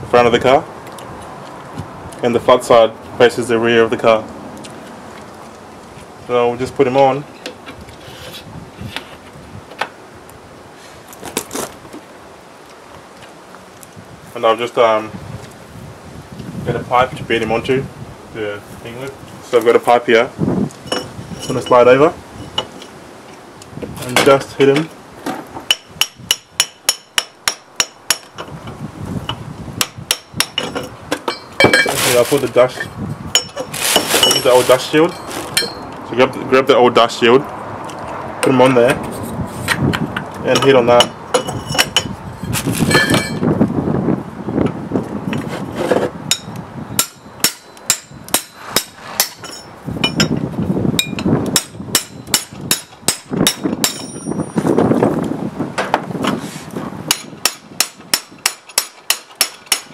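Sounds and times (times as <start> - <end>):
hammer ringing on metal pipe: 46.3 - 50.3, 51.0 - 54.6.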